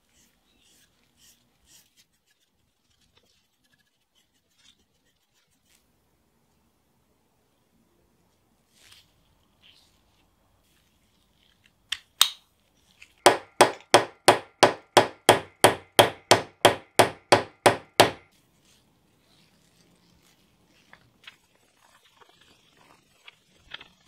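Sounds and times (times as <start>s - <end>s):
hammer striking steel pin: 13.3s - 18.2s.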